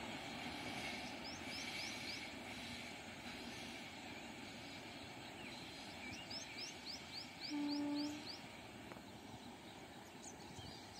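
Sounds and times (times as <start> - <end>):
background hiss: 0.0 - 10.9
train horn: 7.4 - 8.4.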